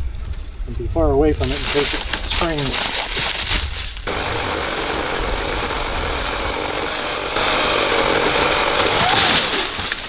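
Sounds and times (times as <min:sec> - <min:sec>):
electric pole saw cutting wood: 0:04.1 - 0:10.0.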